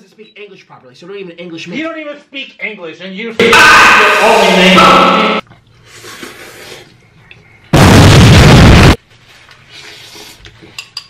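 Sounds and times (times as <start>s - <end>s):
distorted clipped noise blast: 3.4s - 5.4s, 7.8s - 9.0s.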